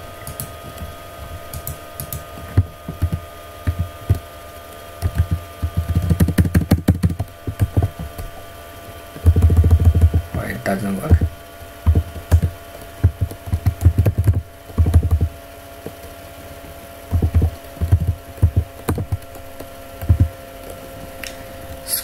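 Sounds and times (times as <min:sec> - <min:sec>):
faint steady hum: 0:00.0 - 0:22.0
computer keyboard typing: 0:00.2 - 0:00.6, 0:01.5 - 0:04.2, 0:05.0 - 0:08.2, 0:09.2 - 0:15.4, 0:17.1 - 0:20.4.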